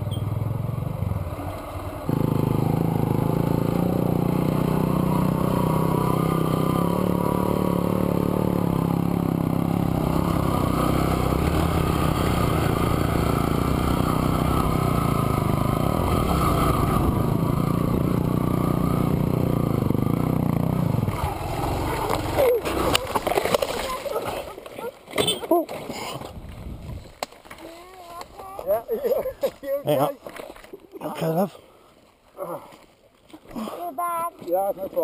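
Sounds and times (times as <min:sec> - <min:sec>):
small motorcycle engine running: 0:00.0 - 0:24.5.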